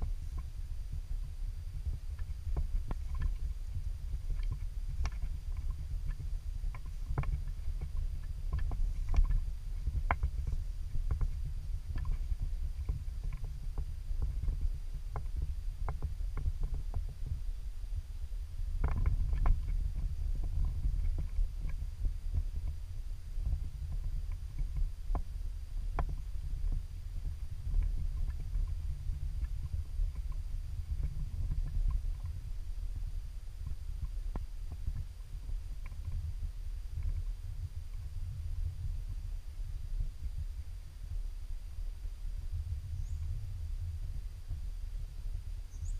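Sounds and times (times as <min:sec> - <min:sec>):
low rumble on microphone: 0:00.0 - 0:45.9
faint high chirp: 0:42.8 - 0:43.4, 0:45.6 - 0:45.9.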